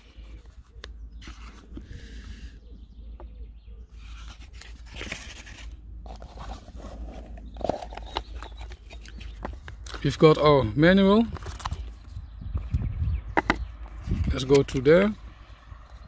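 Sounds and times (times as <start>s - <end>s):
packaging rustling and scraping: 0.0s - 2.0s, 3.9s - 10.4s, 11.2s - 12.1s.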